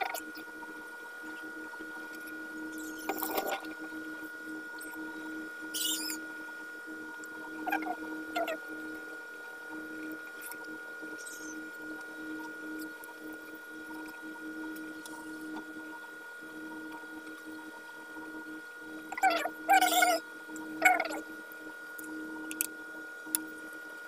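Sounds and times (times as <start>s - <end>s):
pulsing hum: 0.0s - 23.7s
high squeaks and clicks: 2.7s - 3.7s, 5.7s - 6.2s, 11.2s - 11.6s, 19.1s - 20.2s.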